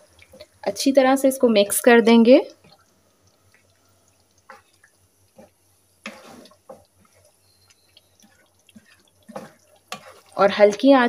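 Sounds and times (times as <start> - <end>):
spatula stirring thick gravy: 2.5 - 11.0.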